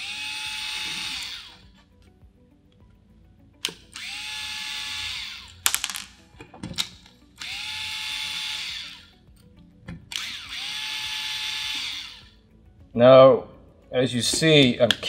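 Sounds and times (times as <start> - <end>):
electric screwdriver motor whine: 0.0 - 1.7, 3.9 - 5.6, 7.4 - 9.2, 10.1 - 12.4.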